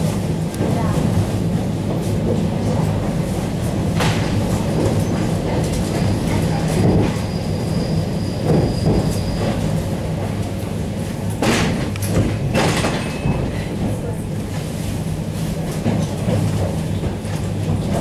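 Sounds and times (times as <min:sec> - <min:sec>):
train running hum and rumble: 0:00.0 - 0:18.0
train wheels clacking: 0:00.0 - 0:18.0.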